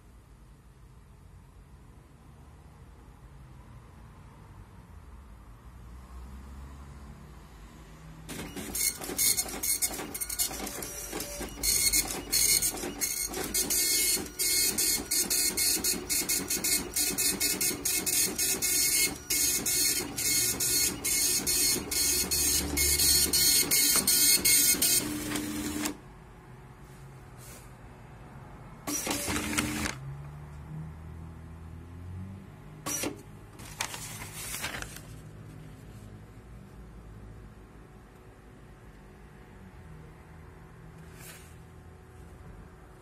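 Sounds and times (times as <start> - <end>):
dot matrix printer buzzing: 8.3 - 26.0, 28.9 - 30.0.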